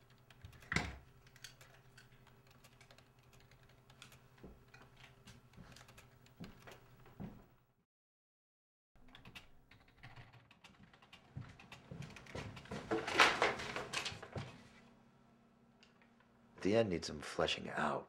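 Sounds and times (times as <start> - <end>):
computer keyboard typing: 0.0 - 6.9, 9.1 - 12.7.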